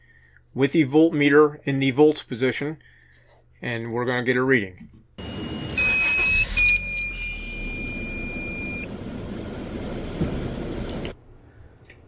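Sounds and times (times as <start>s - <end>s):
high-pitched electronic beeper tone: 5.2s - 8.9s.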